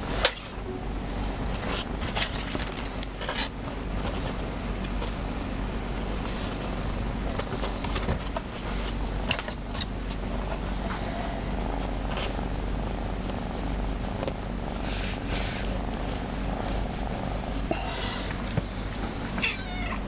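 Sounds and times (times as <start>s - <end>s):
soft rustle of handling: 1.5s - 17.7s
cat purring: 15.8s - 17.7s.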